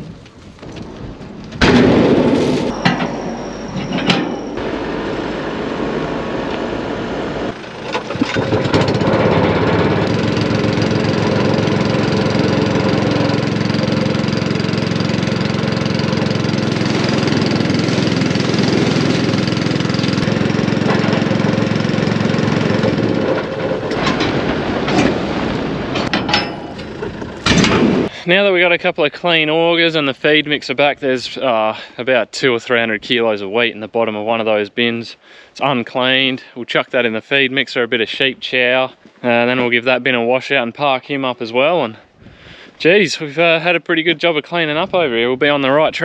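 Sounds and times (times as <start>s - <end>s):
engine starting and running: 1.6s - 28.2s.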